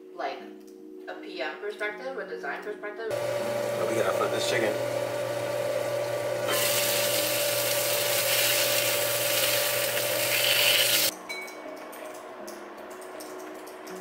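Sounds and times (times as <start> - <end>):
food sizzling in a pan: 6.5 - 11.1.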